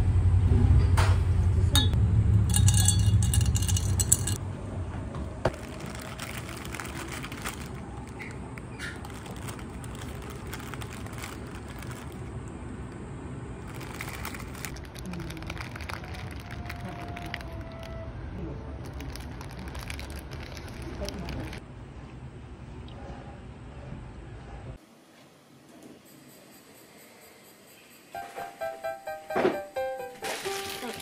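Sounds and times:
loud low rumble: 0.0s - 21.6s
cafe background noise: 5.2s - 23.6s.

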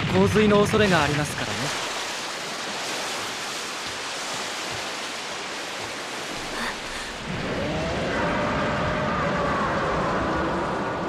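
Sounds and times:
heavy rain pouring: 0.0s - 11.0s
deep rumble: 6.7s - 11.0s.

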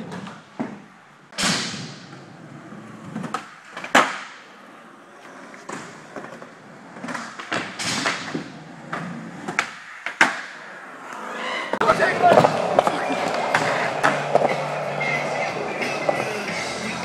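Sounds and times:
skateboard wheels rolling on concrete: 0.0s - 17.0s
skateboard slapping down: 3.1s - 4.4s, 12.2s - 14.7s.

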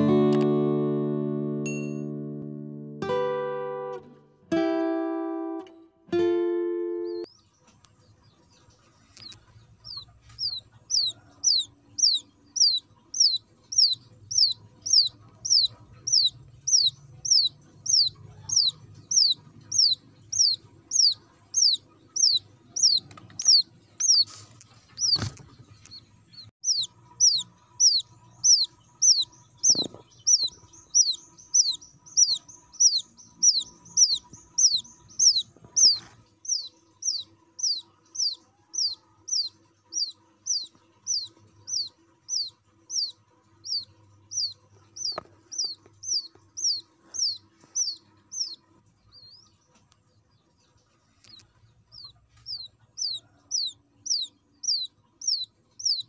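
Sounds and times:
quail chick peeping: 6.7s - 56.0s.

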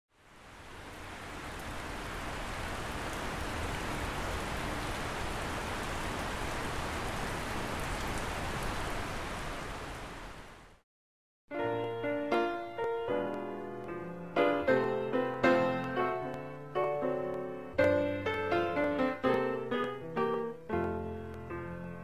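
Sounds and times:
steady ambient hiss: 0.2s - 10.8s.

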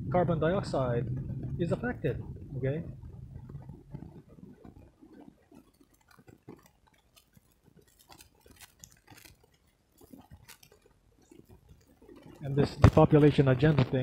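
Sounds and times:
small clicks and clinks: 3.4s - 13.7s.

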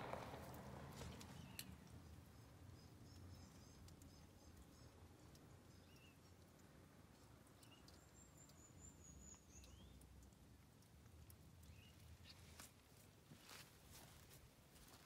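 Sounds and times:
bird chirps: 1.0s - 6.5s, 7.6s - 10.0s.

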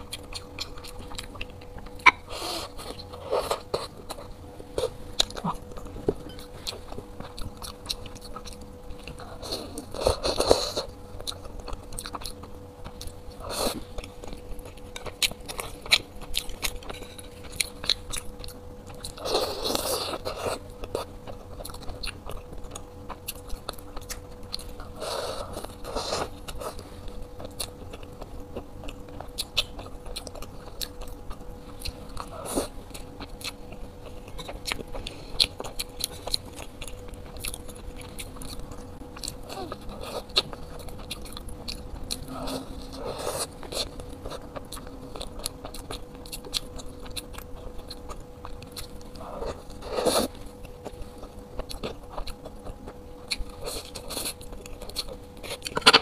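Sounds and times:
chewing with wet mouth clicks: 0.0s - 2.3s, 2.9s - 25.0s, 25.6s - 56.0s
faint hum: 0.0s - 56.0s.

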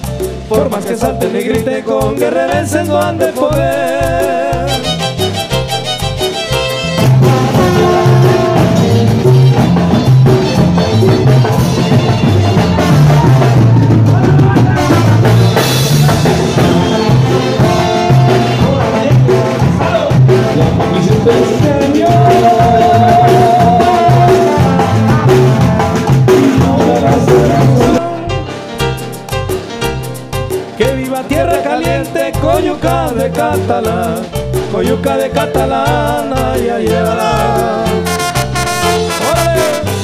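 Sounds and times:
live band playing dance music: 0.0s - 40.0s
trumpet and trombone: 4.7s - 13.7s, 14.6s - 19.1s, 23.8s - 26.6s, 37.2s - 40.0s
wavering held melodic note: 38.1s - 39.9s.

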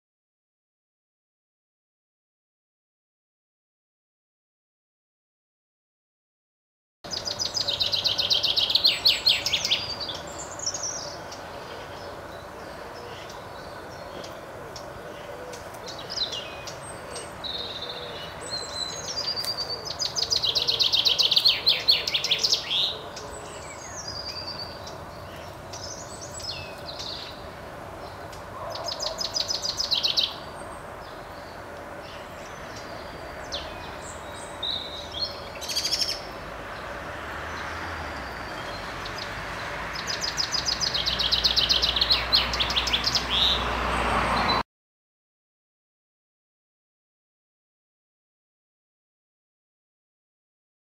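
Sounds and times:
chaffinch singing: 7.1s - 44.6s.

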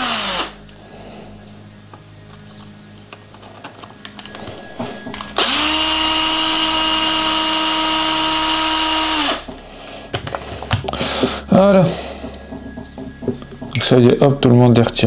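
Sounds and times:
electric screwdriver whine: 0.0s - 0.6s, 3.7s - 9.5s.

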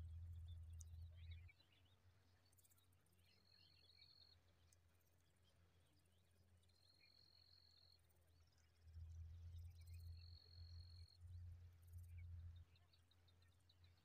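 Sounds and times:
low rumble: 0.0s - 1.5s
faint chirps: 0.0s - 14.0s.

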